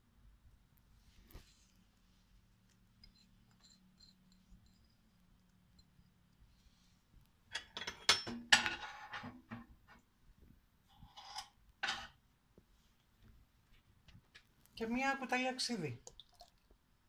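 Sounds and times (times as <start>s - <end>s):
dishes and utensils clinking: 7.5s - 9.4s.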